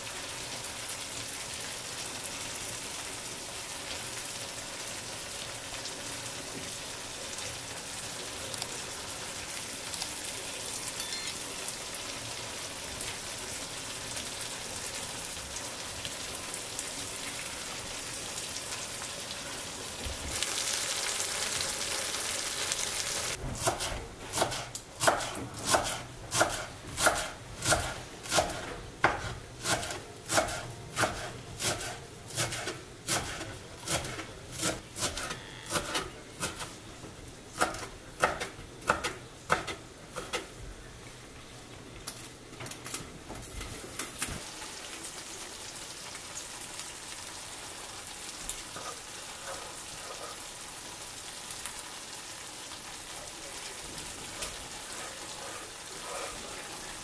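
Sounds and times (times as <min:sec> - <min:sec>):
food sizzling in a frying pan: 0:00.0 - 0:42.4, 0:43.1 - 0:57.0
knife chopping on wooden board: 0:23.6 - 0:36.6.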